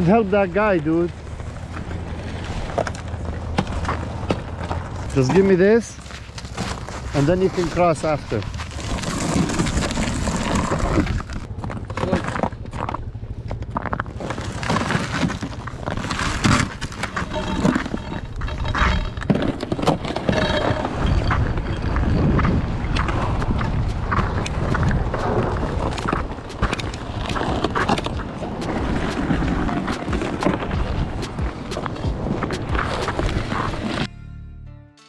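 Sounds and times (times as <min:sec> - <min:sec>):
vehicle rumbling over ice: 0:00.0 - 0:34.1
knocks and rattles: 0:02.8 - 0:33.8
wind buffeting microphone: 0:19.6 - 0:34.0.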